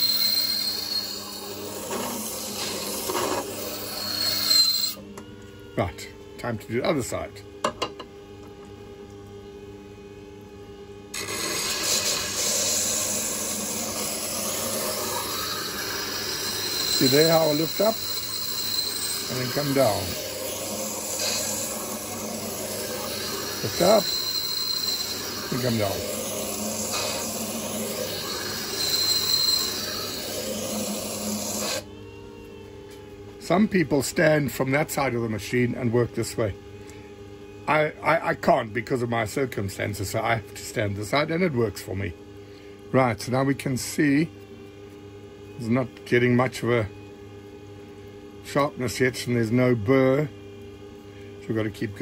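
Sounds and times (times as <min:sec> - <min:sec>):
high squeal: 0:00.0 - 0:05.0, 0:11.2 - 0:31.8
grinder motor humming: 0:00.0 - 0:32.6.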